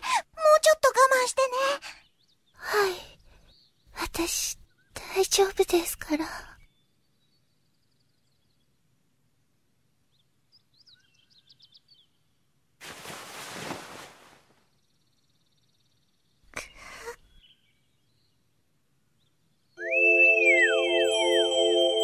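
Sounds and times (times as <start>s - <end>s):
faint bird chirps: 10.1s - 12.4s, 14.7s - 20.6s.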